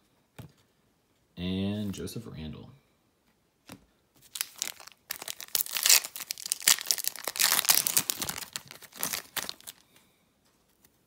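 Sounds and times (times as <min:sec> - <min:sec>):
foil wrapper tearing and crinkling: 0:04.3 - 0:09.8.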